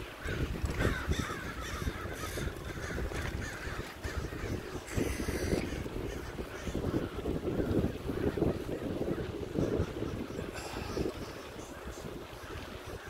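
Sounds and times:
wind rumble: 0.0 - 13.0
crows cawing: 0.2 - 7.8.

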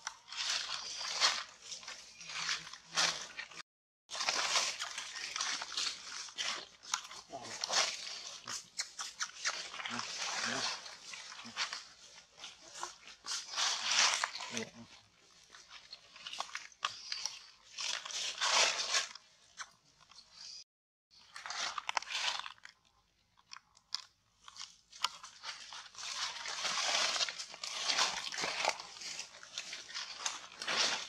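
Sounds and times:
dry leaves crunching and rustling: 0.0 - 8.3, 9.7 - 14.8, 25.3 - 31.0.

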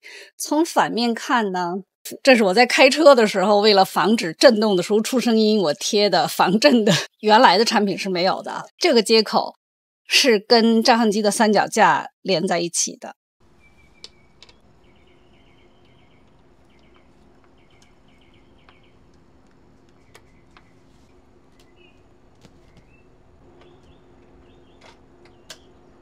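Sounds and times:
faint steady hum: 13.4 - 26.0
small birds chirping: 13.5 - 26.0.

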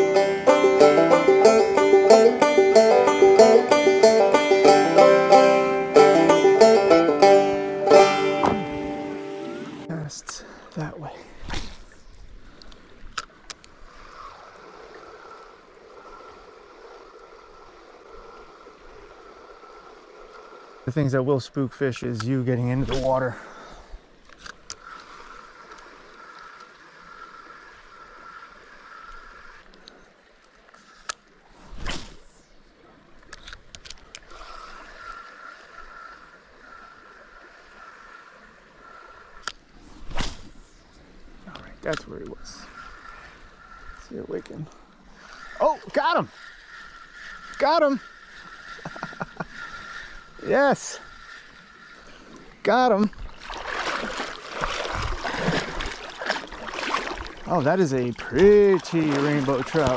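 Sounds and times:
creek water rushing: 0.0 - 13.0, 34.2 - 59.9
fishing rod swishing: 11.4 - 12.0, 31.6 - 32.5, 39.8 - 40.8, 53.5 - 57.4
small clicks: 33.2 - 34.3.

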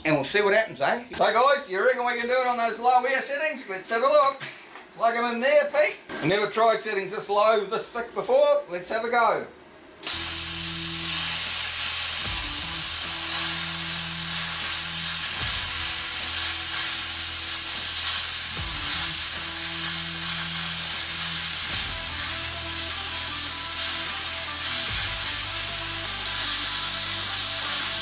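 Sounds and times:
plasma cutter hissing: 10.0 - 28.0.

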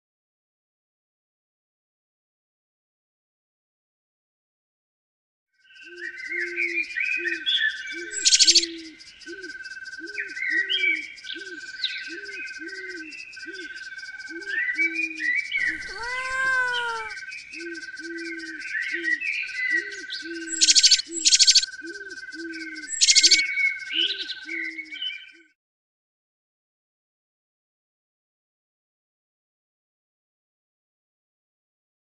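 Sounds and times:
birds chirping and twittering: 5.6 - 25.4
repeated low animal call: 15.6 - 17.2
rising and falling animal call: 15.6 - 17.2.

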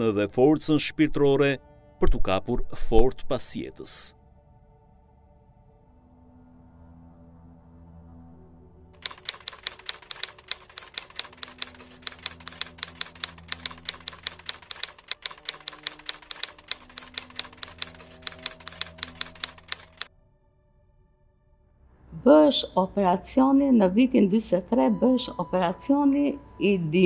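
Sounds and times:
faint background music: 0.0 - 27.0
typewriter key strikes: 9.0 - 20.1.

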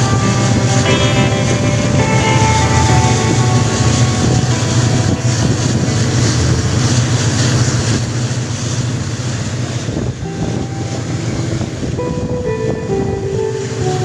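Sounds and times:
held tones: 0.0 - 8.4
boat motor humming: 0.0 - 14.0
wind buffeting microphone: 0.0 - 14.0.

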